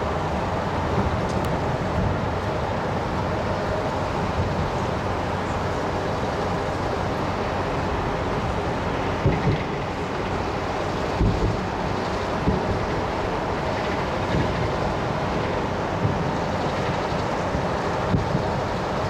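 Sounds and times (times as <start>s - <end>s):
highway traffic rumble: 0.0s - 19.0s
distant fireworks thumps: 11.2s - 11.6s.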